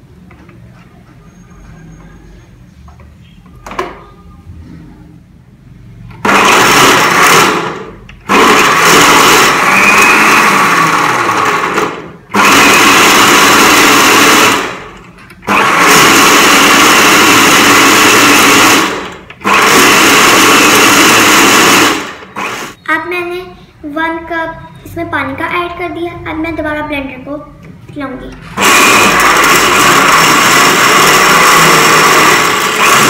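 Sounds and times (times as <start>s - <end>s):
electric blender running: 6.2s - 22.8s, 28.5s - 33.0s.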